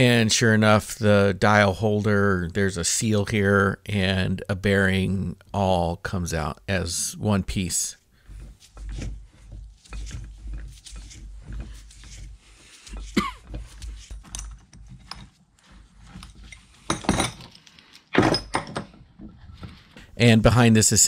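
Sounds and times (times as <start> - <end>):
metal clicking and creaking: 8.3 - 20.0.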